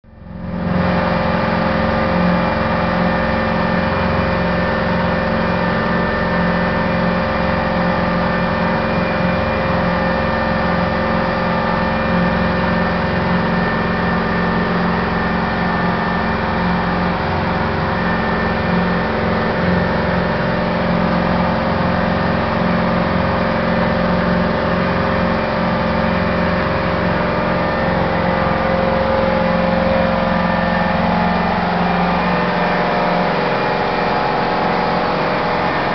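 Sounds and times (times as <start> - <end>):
boat engine drone: 0.0 - 35.9.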